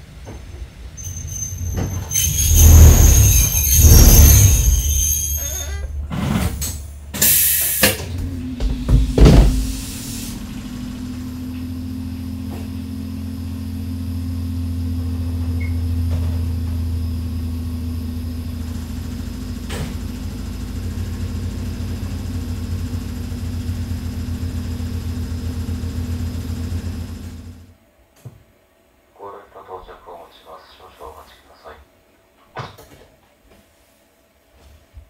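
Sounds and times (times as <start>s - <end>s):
electric train motor hum: 0.0s - 27.7s.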